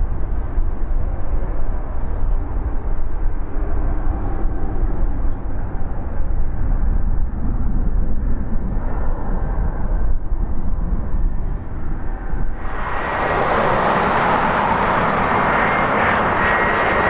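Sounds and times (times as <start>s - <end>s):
jet engines rumbling: 10.3s - 17.0s.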